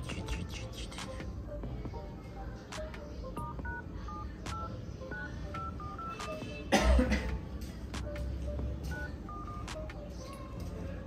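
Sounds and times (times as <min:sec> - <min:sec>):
touch-tone keypad beeps: 0:03.3 - 0:06.6, 0:08.9 - 0:10.0
person coughing: 0:06.6 - 0:07.4.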